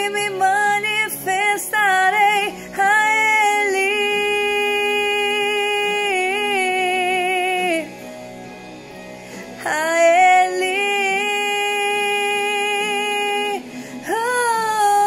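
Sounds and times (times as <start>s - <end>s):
woman singing gospel: 0.0s - 8.0s, 9.6s - 15.0s
soft backing music: 0.0s - 15.0s.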